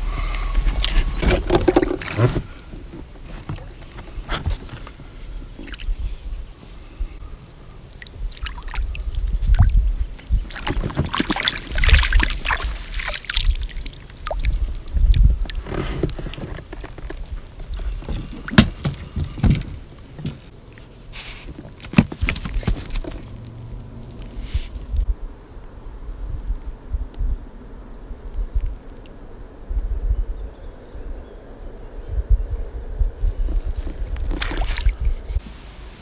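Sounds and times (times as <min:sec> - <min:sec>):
water sloshing and splashing: 0:00.6 - 0:06.3, 0:07.9 - 0:24.6, 0:33.5 - 0:35.4
water dripping: 0:05.5 - 0:06.0, 0:07.2 - 0:19.0.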